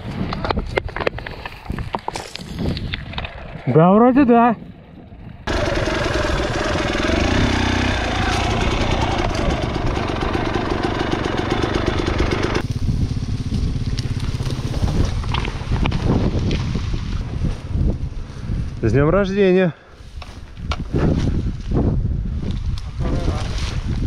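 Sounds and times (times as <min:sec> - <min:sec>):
vehicle engine revving: 0:05.5 - 0:15.0.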